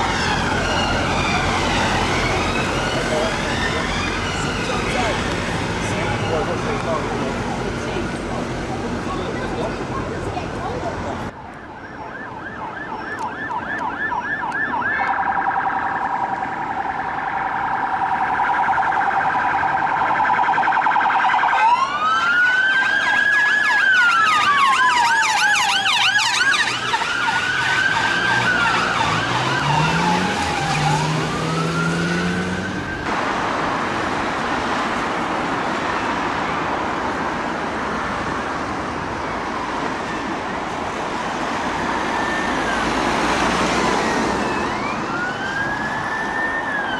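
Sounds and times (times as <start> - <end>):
police siren yelp: 0.0 - 6.8, 11.4 - 33.1, 41.5 - 46.9
police siren wail: 0.0 - 9.7, 11.3 - 33.2, 35.2 - 46.9
road traffic noise: 0.0 - 46.9
deep siren tone: 11.6 - 33.1, 41.7 - 46.9.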